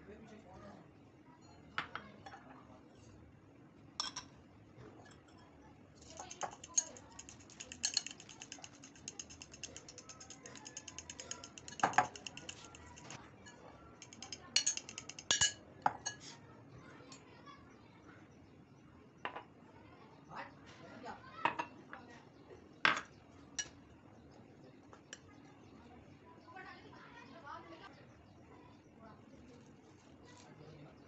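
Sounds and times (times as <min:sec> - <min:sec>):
glass clinks: 0:04.0 - 0:04.4, 0:14.6 - 0:16.2
utensil beating in glass bowl: 0:06.0 - 0:13.2, 0:14.0 - 0:16.3.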